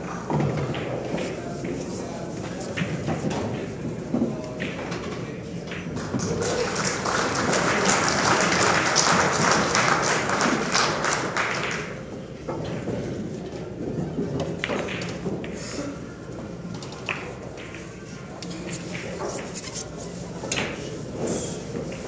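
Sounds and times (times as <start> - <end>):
pool balls clicking: 0.3 - 15.6, 16.3 - 22.0
crowd clapping: 6.0 - 11.9.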